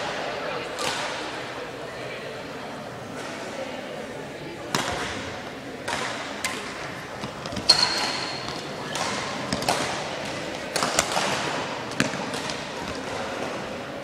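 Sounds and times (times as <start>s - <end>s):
racket hitting shuttlecock: 4.7s - 13.8s
shoe squeaking on court floor: 7.2s - 9.6s.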